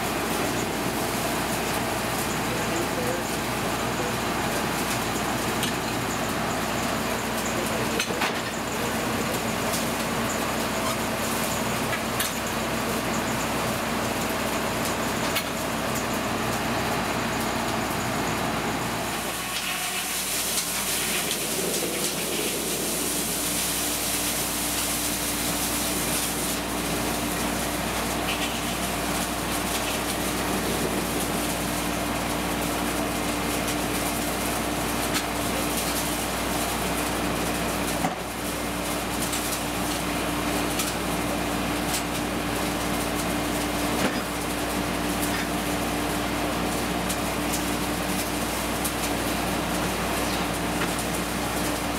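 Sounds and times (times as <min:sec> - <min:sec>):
sawmill machinery running: 0:00.0 - 0:51.9
steady hum: 0:16.7 - 0:33.1.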